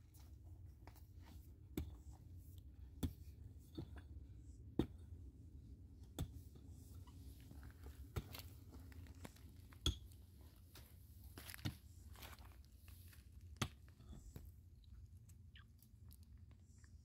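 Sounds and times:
low steady background noise: 0.0 - 17.0.

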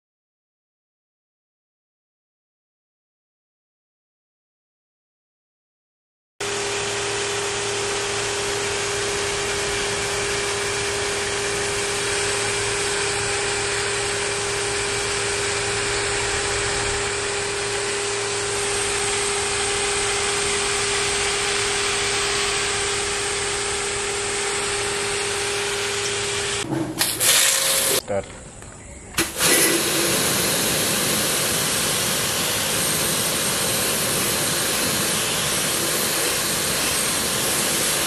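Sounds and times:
motor whine: 6.4 - 38.0
pressure washer water jet hiss: 18.0 - 28.0, 29.2 - 38.0.

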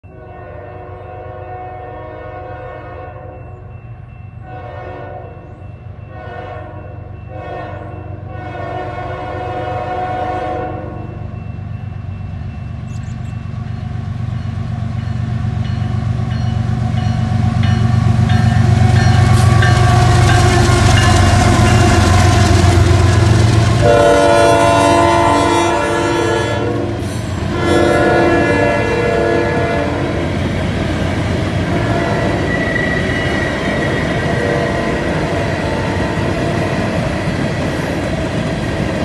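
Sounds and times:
locomotive air horn blasts: 0.0 - 3.5, 4.4 - 5.5, 6.1 - 11.3, 19.0 - 22.9, 23.8 - 30.4, 31.6 - 33.6, 34.2 - 36.4
locomotive engine rumble: 7.8 - 39.0.

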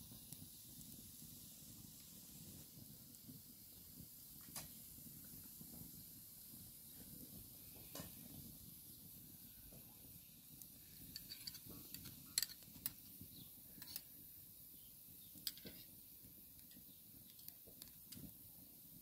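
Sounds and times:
low steady background noise: 0.0 - 19.0
metal spoon clinking glass: 11.1 - 13.0.

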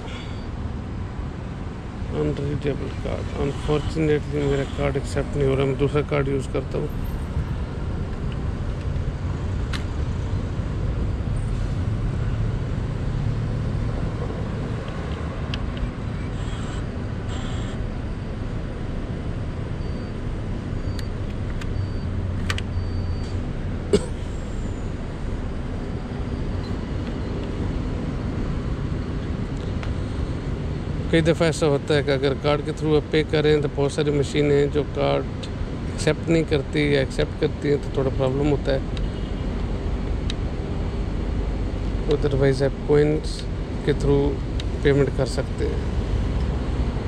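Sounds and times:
street traffic rumble: 0.0 - 47.0
faint high beeps: 0.2 - 0.6, 19.8 - 23.4.

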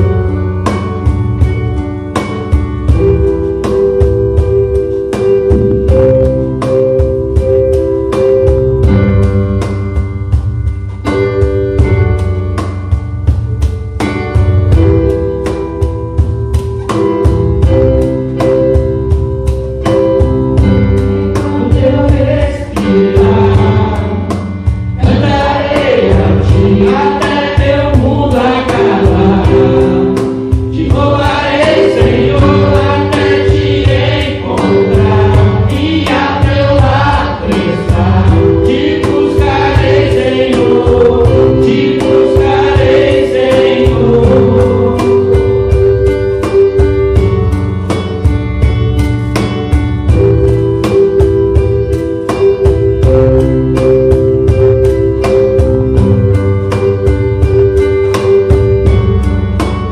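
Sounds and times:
instrumental accompaniment: 0.0 - 59.9
people singing gospel song: 21.3 - 46.8.

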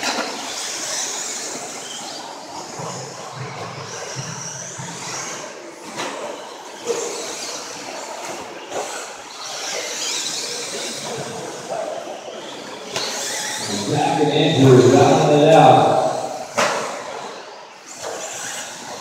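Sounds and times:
rc truck motors whining: 0.0 - 14.6, 16.3 - 19.0.

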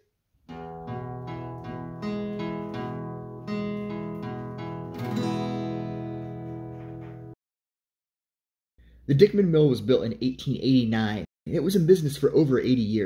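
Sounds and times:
guitar chords strummed: 0.5 - 7.4.

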